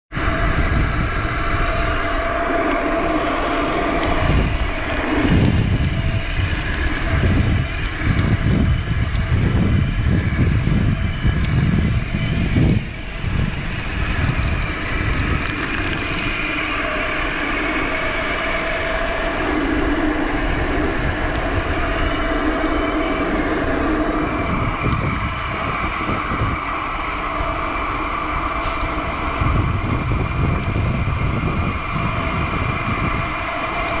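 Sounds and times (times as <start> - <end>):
wind buffeting microphone: 0.1 - 34.0.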